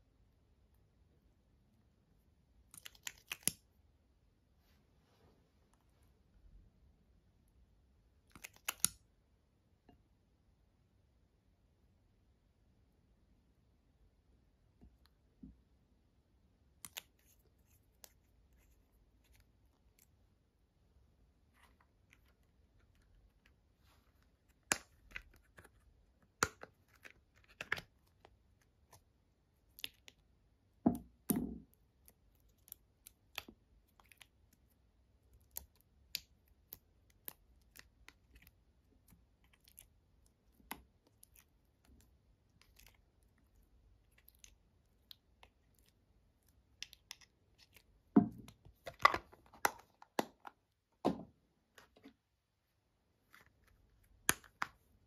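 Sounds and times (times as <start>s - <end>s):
slime squelching: 2.6s - 3.8s, 8.2s - 9.0s, 16.7s - 50.8s.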